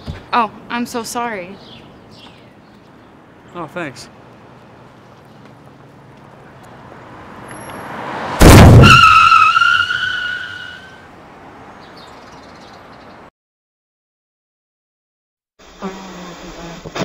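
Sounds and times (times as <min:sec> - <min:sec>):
vehicle noise: 0:00.0 - 0:13.3
high wavering tyre squeal: 0:07.4 - 0:11.1
loud impact: 0:08.4 - 0:09.3.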